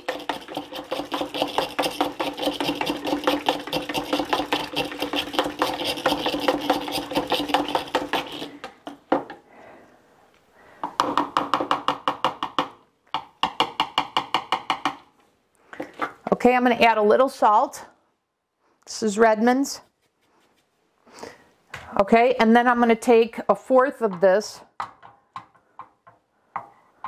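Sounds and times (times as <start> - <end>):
spinning whisk whirring in bowl: 0.0 - 8.7.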